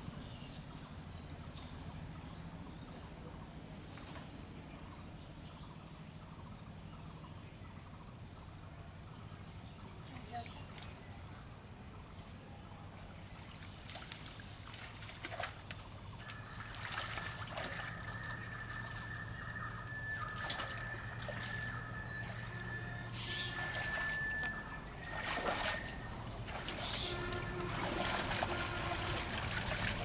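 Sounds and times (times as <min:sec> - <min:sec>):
water sloshing and splashing: 0:13.2 - 0:30.0
steady high-pitched tone: 0:16.3 - 0:29.5.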